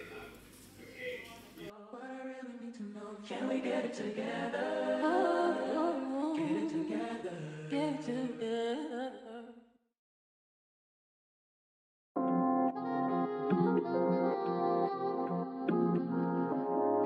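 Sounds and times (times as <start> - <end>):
a cappella singing in harmony: 1.7 - 9.7, 12.7 - 17.0.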